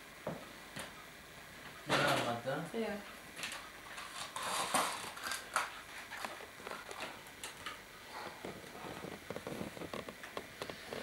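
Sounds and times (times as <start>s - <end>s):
toys and packaging clicking: 3.4s - 7.8s.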